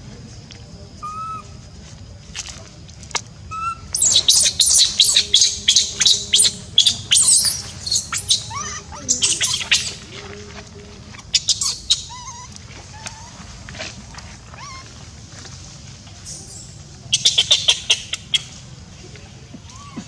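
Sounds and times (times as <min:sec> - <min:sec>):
infant monkey screaming: 0:01.0 - 0:01.6, 0:03.5 - 0:10.1, 0:11.2 - 0:13.4, 0:14.5 - 0:15.0, 0:19.7 - 0:20.0.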